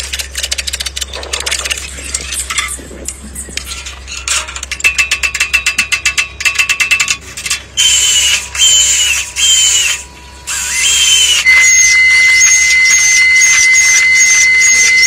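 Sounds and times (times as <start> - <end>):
sliding whistle-like electronic notes: 7.8 - 15.0
steady electronic tone: 7.8 - 15.0.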